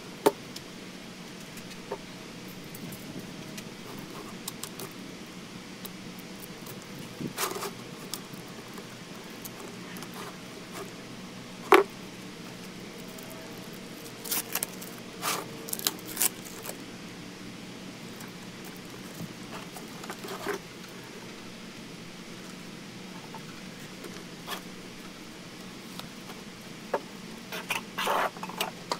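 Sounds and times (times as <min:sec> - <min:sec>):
plastic wrap crinkling and tearing: 0:13.5 - 0:16.8.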